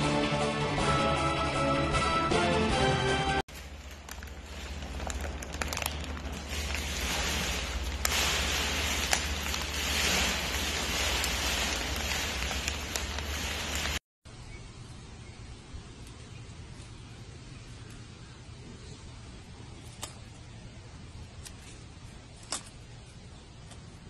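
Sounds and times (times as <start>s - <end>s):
snack bag rustling and crinkling: 3.5s - 14.1s.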